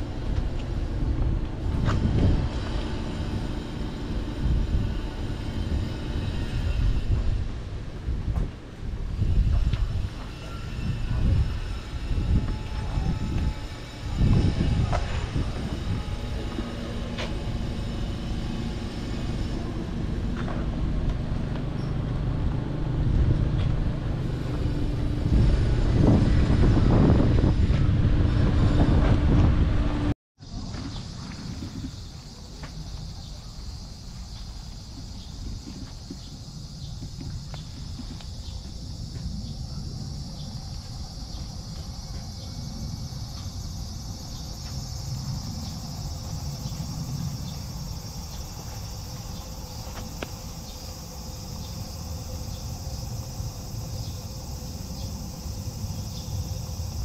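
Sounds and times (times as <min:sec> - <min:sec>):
loud low rumble: 0:00.0 - 0:10.2, 0:10.8 - 0:30.2
insects chirring: 0:00.0 - 0:23.0, 0:30.4 - 0:57.0.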